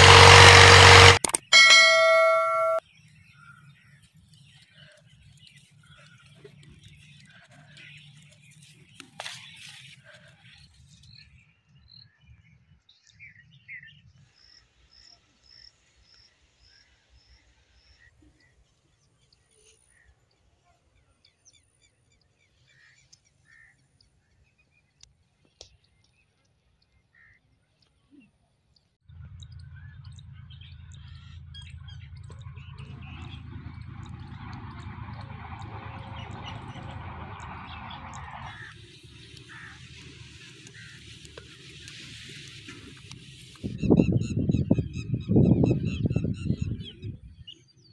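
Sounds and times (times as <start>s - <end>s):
steady low rumble: 29.0s - 47.4s.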